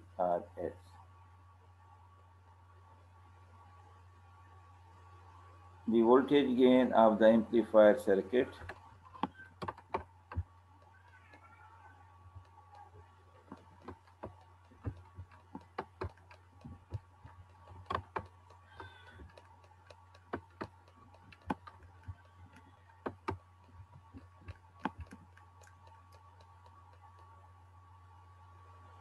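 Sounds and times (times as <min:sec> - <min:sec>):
steady low hum: 0:00.0 - 0:29.0
mouse and keyboard clicks: 0:08.6 - 0:11.5, 0:13.5 - 0:27.3.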